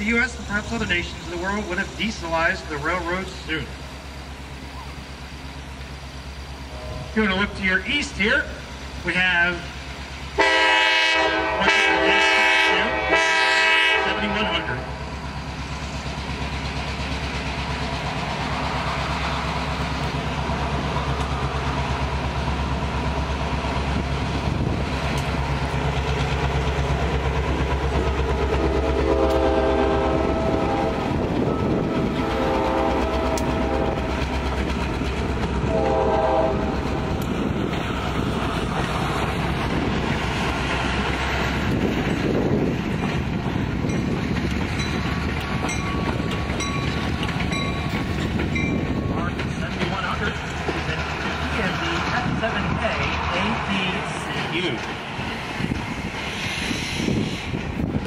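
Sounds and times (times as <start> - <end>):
diesel locomotive engine drone: 0.0 - 58.0
train wheels rumbling: 0.0 - 58.0
train horn: 10.4 - 14.9, 28.5 - 34.3, 35.6 - 36.8.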